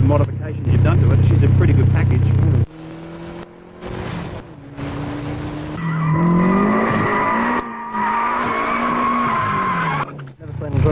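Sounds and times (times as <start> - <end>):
car engine running: 0.0 - 10.9
tyres squealing: 5.8 - 10.3.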